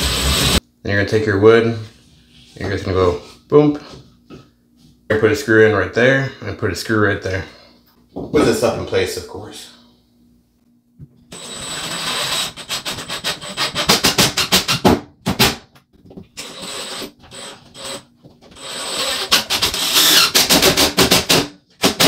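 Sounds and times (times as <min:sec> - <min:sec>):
impact driver driving screws: 0:18.6 - 0:22.0.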